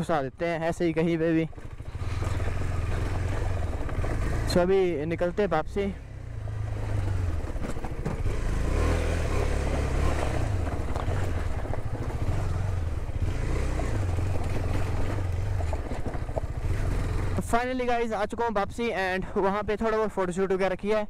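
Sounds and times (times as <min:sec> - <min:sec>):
motorcycle engine running: 0:00.0 - 0:20.8
tyres rumbling over stones: 0:01.4 - 0:05.9, 0:06.8 - 0:17.6.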